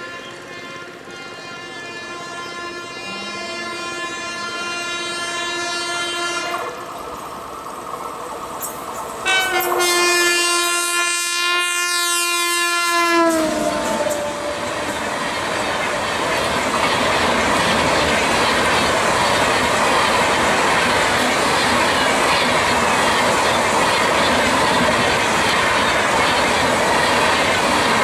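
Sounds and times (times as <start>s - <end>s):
train horn blasts: 0.0s - 6.9s, 9.2s - 15.4s
train rushing past: 0.0s - 28.0s.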